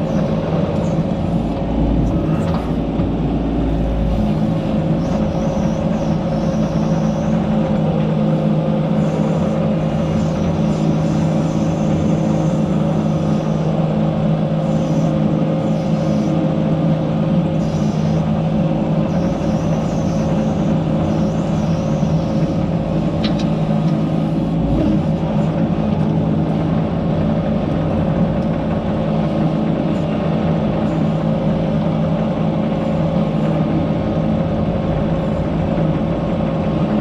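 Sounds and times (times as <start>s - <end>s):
low rumble: 0.0s - 7.8s
excavator diesel engine running: 0.0s - 37.0s.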